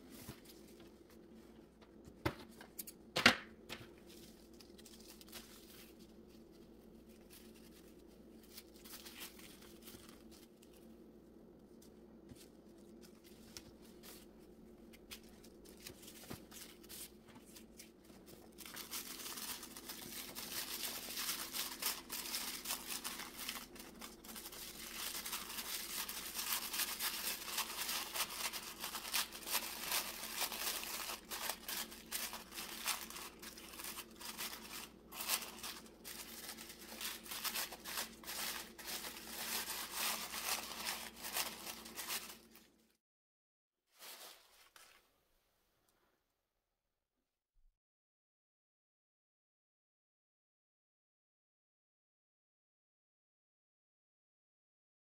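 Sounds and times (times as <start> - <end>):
tissue paper rustling: 4.0 - 10.9, 11.8 - 42.8, 43.9 - 45.2.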